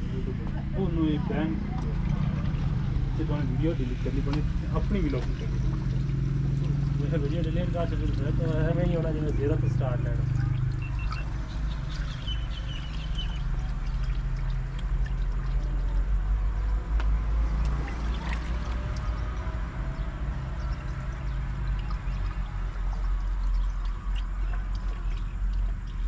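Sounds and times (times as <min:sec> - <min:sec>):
water trickling from a cup: 0:01.0 - 0:26.0.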